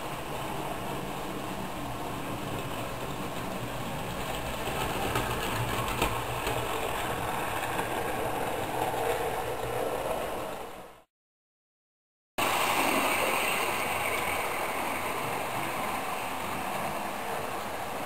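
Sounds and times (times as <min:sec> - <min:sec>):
wheels rattling over rails: 0:00.0 - 0:11.1, 0:12.4 - 0:18.0.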